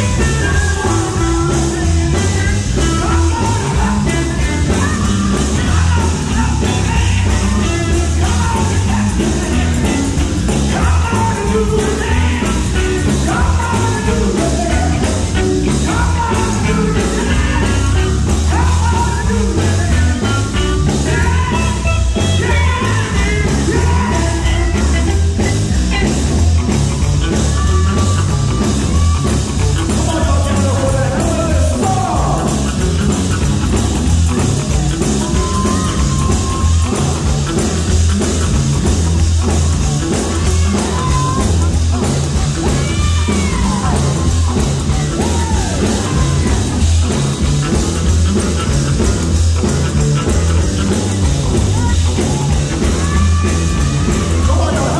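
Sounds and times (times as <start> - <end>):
electric guitar and band: 0.0 - 54.9
gospel group singing: 0.1 - 25.2.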